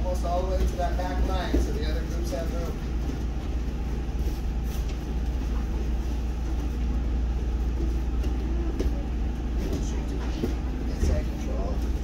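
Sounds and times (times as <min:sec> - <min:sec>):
low room rumble: 0:00.0 - 0:12.0
thumps of bodies on gym mats: 0:07.8 - 0:11.4.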